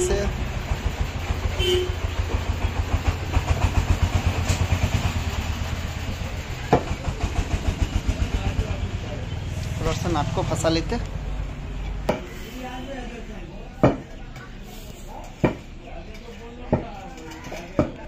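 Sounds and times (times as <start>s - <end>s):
engine running with low rumble: 0.0s - 12.0s.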